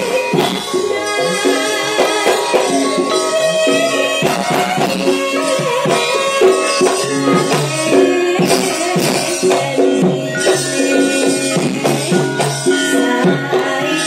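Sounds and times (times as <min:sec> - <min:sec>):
gamelan ensemble playing: 0:00.0 - 0:14.0.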